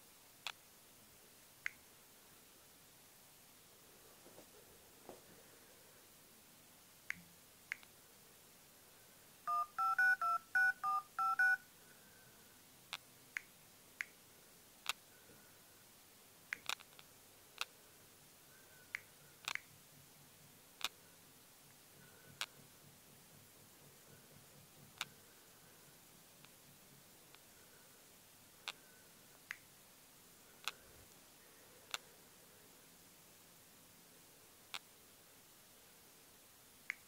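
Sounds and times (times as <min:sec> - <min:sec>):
two-tone keypad beeps: 0:09.5 - 0:11.6.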